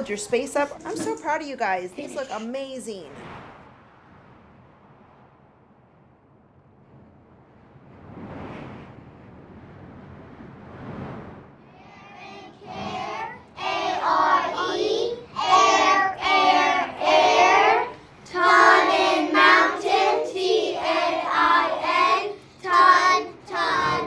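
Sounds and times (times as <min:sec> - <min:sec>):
children singing: 0:11.8 - 0:24.0.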